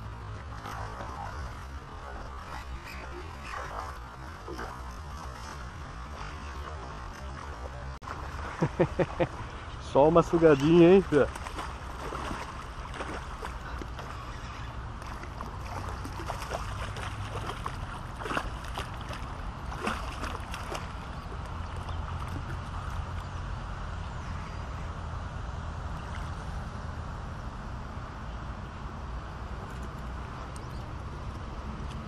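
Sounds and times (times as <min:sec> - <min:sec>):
wind rumble on microphone: 0:00.0 - 0:32.0
fish thrashing and splashing: 0:00.3 - 0:08.7, 0:11.0 - 0:23.1.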